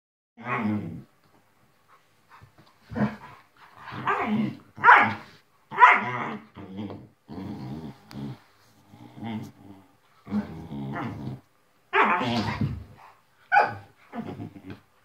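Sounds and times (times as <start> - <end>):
dogs barking: 4.8 - 6.1, 13.5 - 13.8
dogs growling: 6.0 - 13.1, 13.8 - 14.9.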